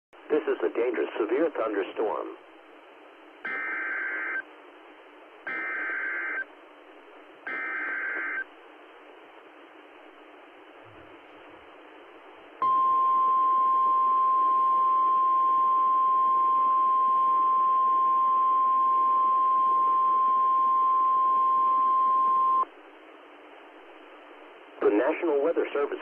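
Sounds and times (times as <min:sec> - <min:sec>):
radio hiss: 0:00.2 - 0:02.6, 0:23.8 - 0:26.0
steady warning alarm tone: 0:03.5 - 0:04.4, 0:05.5 - 0:06.4, 0:07.5 - 0:08.5, 0:12.6 - 0:22.6.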